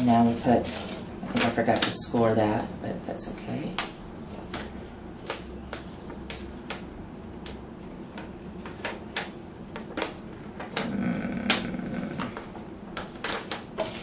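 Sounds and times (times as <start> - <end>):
sticker paper clicks and crackles: 0.3 - 2.1, 3.6 - 14.0
paper rustling: 12.2 - 14.0.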